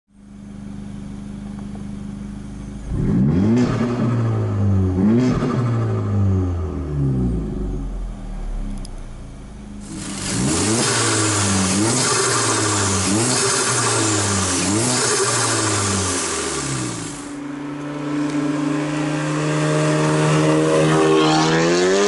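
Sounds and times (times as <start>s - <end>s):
car engine idling and revving: 0.1s - 22.0s.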